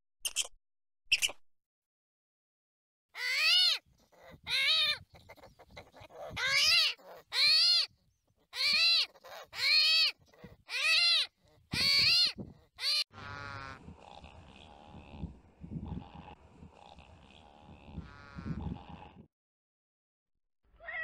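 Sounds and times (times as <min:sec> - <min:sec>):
high whining animal calls: 0:08.6 - 0:19.2.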